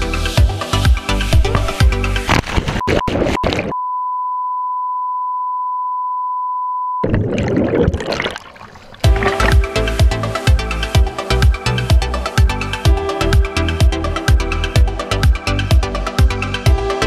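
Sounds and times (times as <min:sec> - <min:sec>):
dance music: 0:00.0 - 0:03.7, 0:09.0 - 0:17.0
steady test-tone beep: 0:02.8 - 0:07.1
underwater bubbling: 0:07.0 - 0:10.0.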